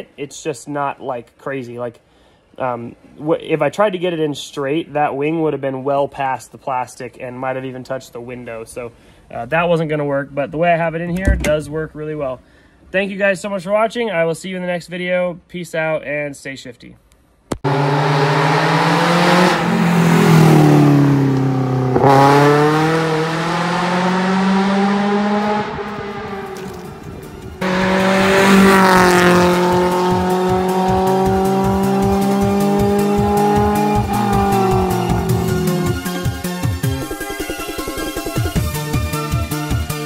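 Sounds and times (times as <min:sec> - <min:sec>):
car engine revving: 0:17.6 - 0:38.3
electronic music with steady beat: 0:28.5 - 0:40.0.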